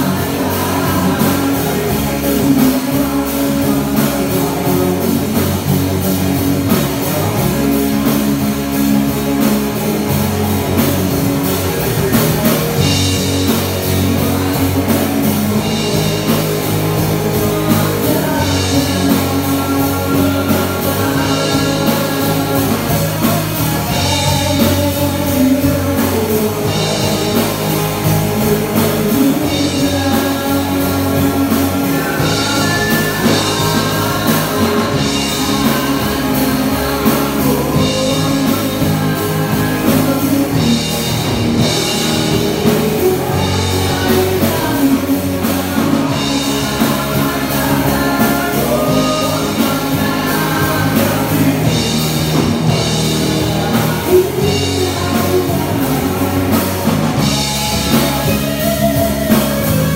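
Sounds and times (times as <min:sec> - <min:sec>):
live rock band playing: 0:00.0 - 0:59.9
man singing: 0:00.0 - 0:59.9.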